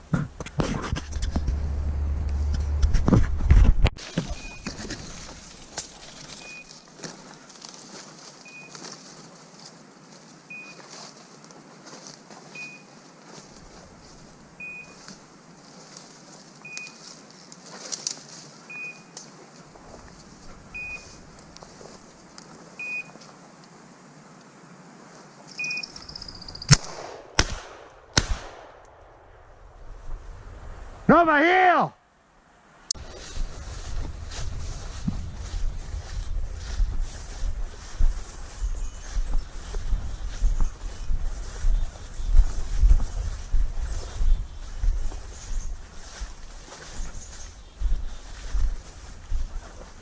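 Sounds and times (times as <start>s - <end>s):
footsteps through dry brush: 0.4s - 23.6s, 33.0s - 50.0s
beeper collar beeping: 4.3s - 4.7s, 6.4s - 6.7s, 8.5s - 8.8s, 12.6s - 12.9s, 14.6s - 15.0s, 18.7s - 19.1s, 20.8s - 21.2s, 22.8s - 23.1s, 25.6s - 26.7s
sharp loud cracks: 26.6s - 29.5s.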